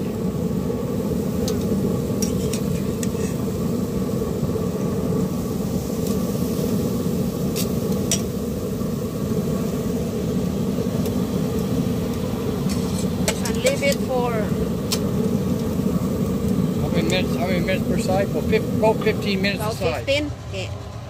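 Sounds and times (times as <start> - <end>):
steady low hum: 0.0 - 21.0
metal tongs clicking on grill grate: 1.4 - 3.2, 7.5 - 8.3.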